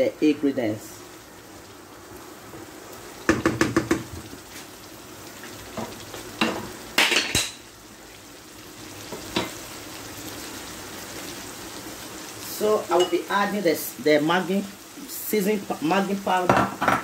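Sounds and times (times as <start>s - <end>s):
stew sizzling in a pan: 0.0s - 17.0s
utensil knocks and clatter: 3.3s - 4.3s, 16.5s - 17.0s.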